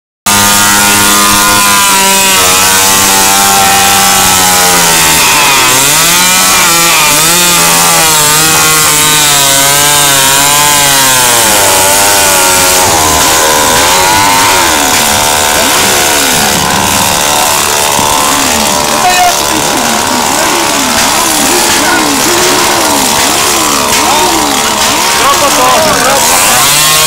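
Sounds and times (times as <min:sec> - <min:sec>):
two-stroke engine revving high: 0:00.2 - 0:27.0
wheel spinning on asphalt: 0:12.8 - 0:26.6.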